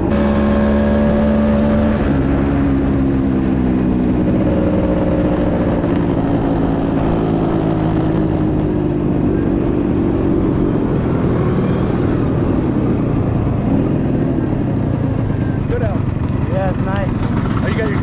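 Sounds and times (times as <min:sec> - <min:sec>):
scooter engine running: 0:00.0 - 0:18.0
wind and road noise: 0:00.0 - 0:18.0.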